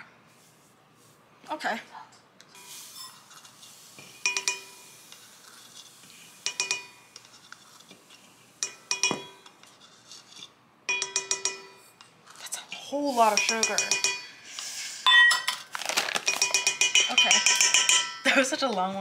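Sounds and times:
metal clinking against bowl: 0:13.3 - 0:14.3, 0:16.3 - 0:18.4.

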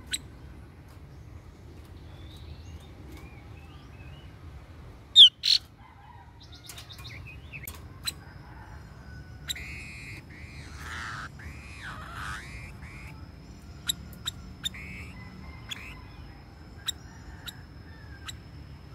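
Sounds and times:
bird squawks: 0:05.2 - 0:05.6, 0:09.5 - 0:13.2, 0:13.8 - 0:16.0
bird chirps and clicks: 0:06.6 - 0:08.2
wavering bird call: 0:09.4 - 0:13.2, 0:13.8 - 0:16.2.

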